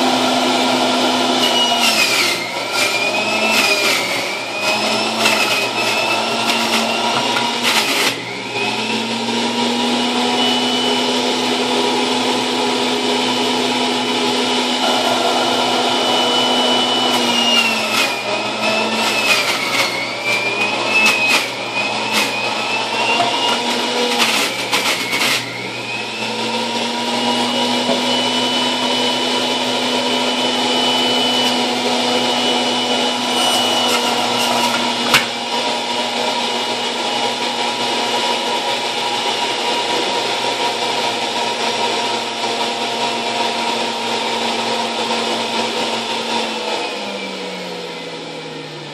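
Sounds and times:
juicer motor whine: 0.0 - 48.9
produce crunching and grinding: 0.7 - 9.0, 14.8 - 36.1.

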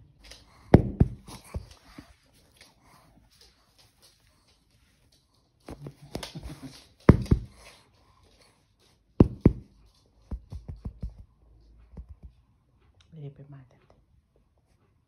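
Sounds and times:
sharp knocks and taps: 7.1 - 7.6, 9.2 - 12.4.

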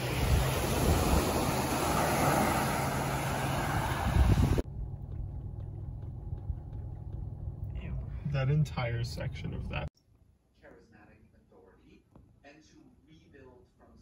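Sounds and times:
waves washing onto beach: 0.0 - 4.6
wind buffeting microphone: 0.0 - 7.9
car cabin rumble: 2.8 - 9.9.

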